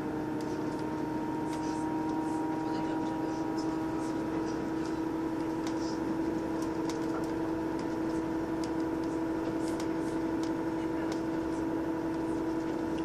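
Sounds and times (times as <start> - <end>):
low rumble of wheels: 0.0 - 13.0
train engine drone: 0.0 - 13.0.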